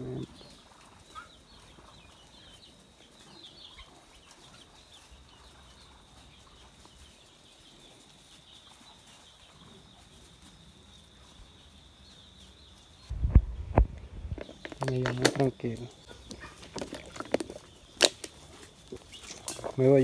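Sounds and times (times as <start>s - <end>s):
farmyard fowl calling: 0.0s - 10.2s, 14.4s - 20.0s.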